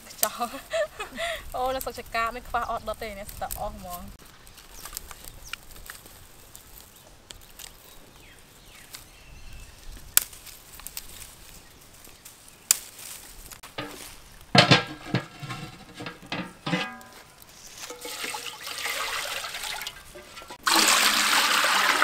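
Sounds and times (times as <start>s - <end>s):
fire crackling and snapping: 3.2s - 9.1s, 9.8s - 14.6s
metal pot clanking: 13.6s - 20.9s.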